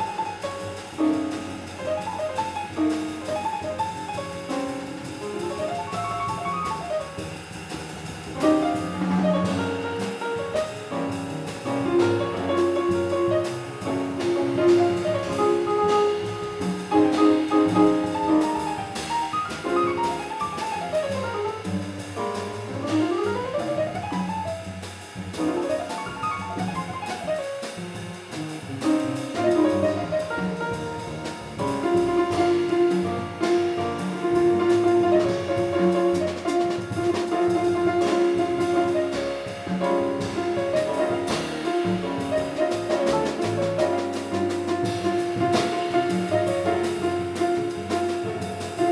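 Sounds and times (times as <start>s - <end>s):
double bass: 0.0s - 48.9s
drum kit with cymbals: 0.0s - 48.9s
piano: 0.0s - 48.9s.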